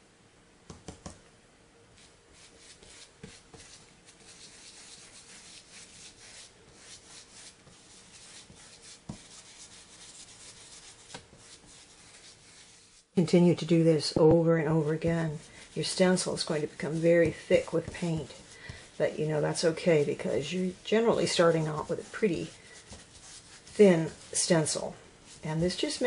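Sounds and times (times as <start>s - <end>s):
scratchy bristle strokes: 1.9s - 26.0s.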